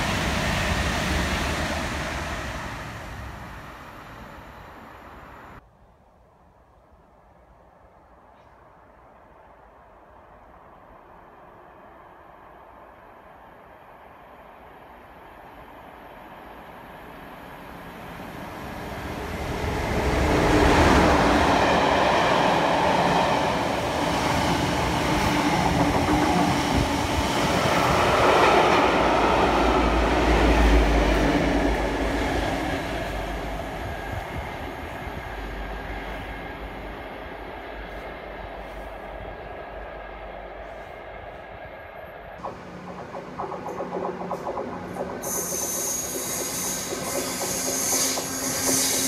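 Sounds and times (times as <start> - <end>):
deep locomotive engine rumble: 0.0 - 5.6, 10.3 - 49.0
train passing at speed: 0.0 - 5.6, 7.6 - 49.0.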